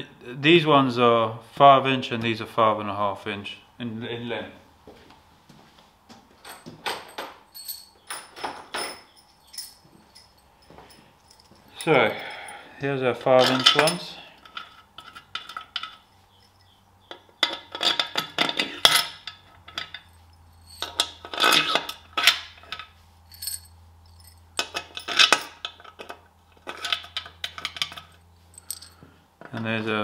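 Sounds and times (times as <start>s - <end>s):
bolts rattling into holes: 6.4s - 10.4s, 13.4s - 16.0s, 17.1s - 22.8s, 23.4s - 29.7s
metal bolts clinking: 6.4s - 12.6s, 13.4s - 29.7s.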